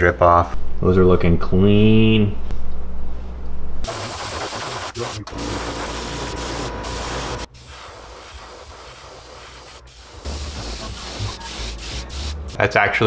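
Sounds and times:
airbrush spraying paint: 0:03.8 - 0:12.6.

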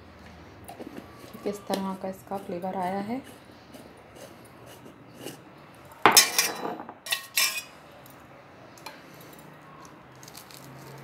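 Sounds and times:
dishes clattering: 0:06.0 - 0:07.7
bowls knocking on counter: 0:06.1 - 0:07.0.

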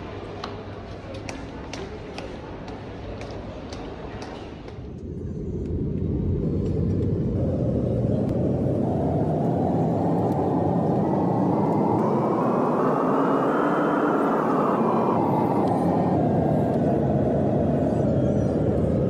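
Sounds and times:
jet noise inside airliner cabin: 0:04.1 - 0:19.0.

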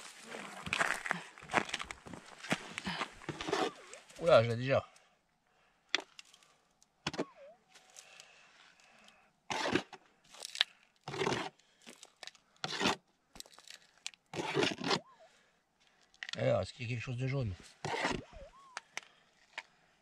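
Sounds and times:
hands scraping stony soil: 0:00.0 - 0:04.3, 0:09.5 - 0:12.0, 0:12.6 - 0:15.0.

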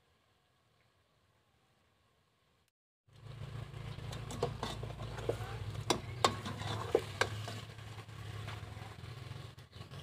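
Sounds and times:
food sizzling: 0:04.1 - 0:09.4.

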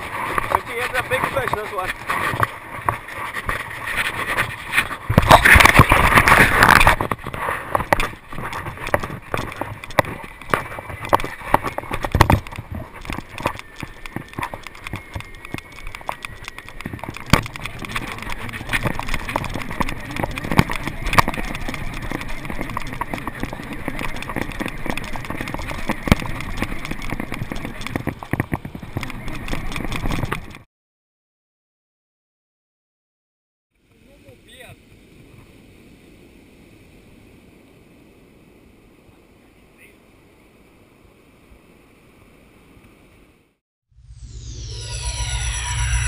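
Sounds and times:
fishing rod and reel rattling: 0:00.0 - 0:30.6
wind buffeting camera: 0:00.0 - 0:30.6.

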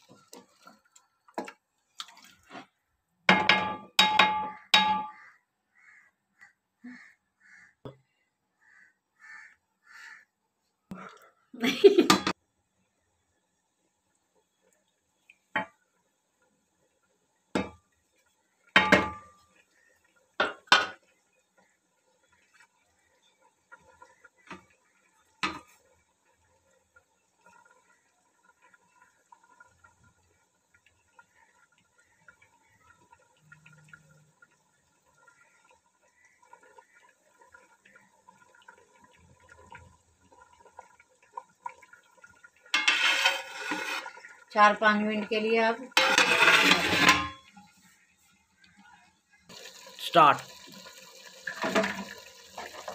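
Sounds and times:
rice simmering bubbling: 0:00.0 - 0:06.0, 0:12.3 - 0:52.9
spoon clanking on metal pot: 0:03.3 - 0:05.2, 0:18.8 - 0:19.4, 0:42.8 - 0:44.0, 0:45.9 - 0:47.5.

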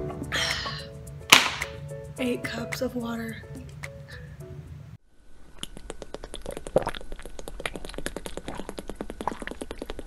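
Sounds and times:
water bubbling: 0:05.6 - 0:10.0.

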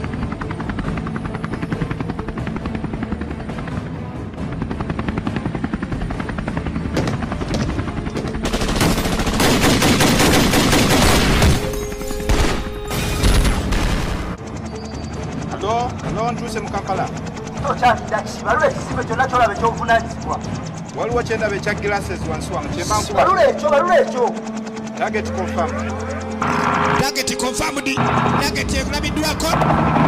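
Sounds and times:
helicopter rotor chopping: 0:00.0 - 0:12.9, 0:13.5 - 0:30.0
machine-gun fire: 0:07.0 - 0:11.7.

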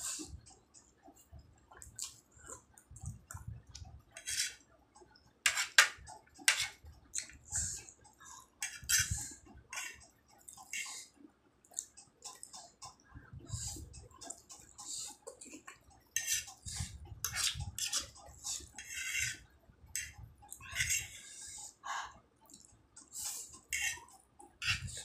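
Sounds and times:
metal fork scraping china plate: 0:04.2 - 0:04.6, 0:05.5 - 0:06.8, 0:08.6 - 0:10.0, 0:16.2 - 0:19.4, 0:20.0 - 0:21.4, 0:23.2 - 0:25.0.

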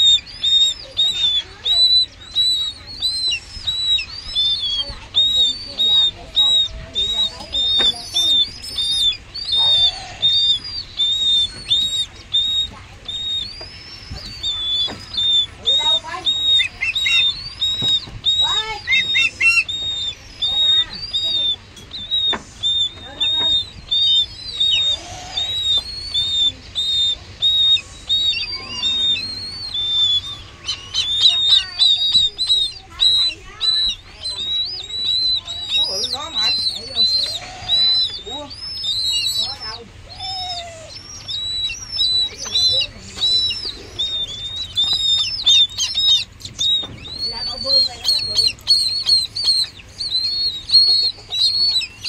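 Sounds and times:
raptor chicks cheeping: 0:00.0 - 0:52.0.

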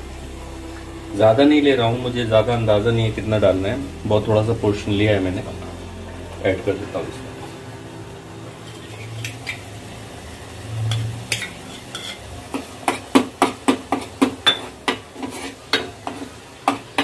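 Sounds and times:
spatula scraping a saucepan: 0:10.9 - 0:13.1, 0:13.9 - 0:17.0
spatula knocking against pan: 0:12.6 - 0:15.1.

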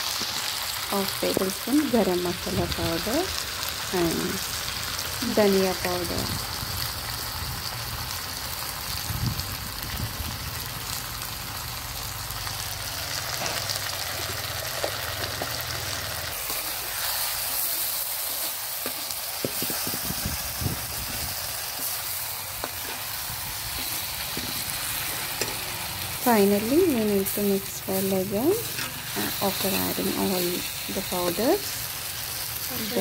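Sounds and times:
chicken sizzling in hot oil: 0:00.0 - 0:33.0.

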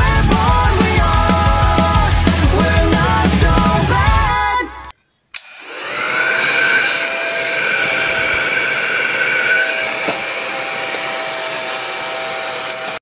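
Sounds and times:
mini vacuum cleaner whine: 0:05.4 - 0:13.0.

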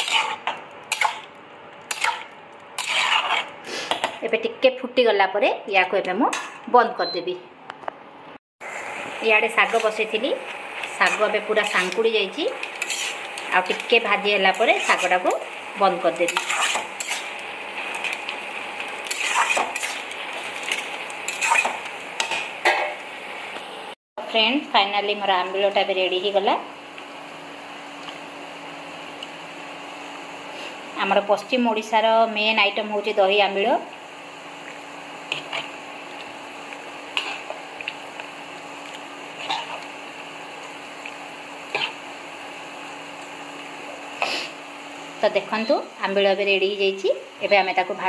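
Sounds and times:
metal spatula scraping metal pan: 0:00.0 - 0:01.2, 0:02.8 - 0:03.5, 0:10.9 - 0:13.9, 0:14.5 - 0:15.3, 0:16.2 - 0:17.4, 0:19.0 - 0:21.8
light steady sizzle: 0:08.6 - 0:48.0.

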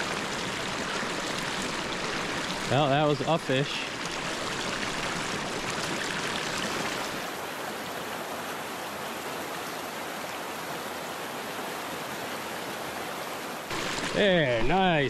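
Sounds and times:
stream running over rocks: 0:00.0 - 0:15.0.

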